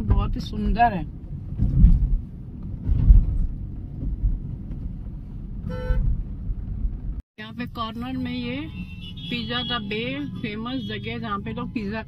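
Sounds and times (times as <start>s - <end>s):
car road and engine rumble: 0.0s - 12.0s
vehicle horn toot: 5.7s - 6.1s, 8.7s - 11.2s.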